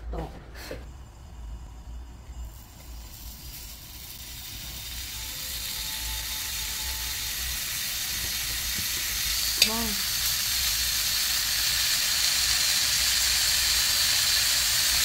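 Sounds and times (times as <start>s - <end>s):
meat sizzling on a grill pan: 2.4s - 15.0s.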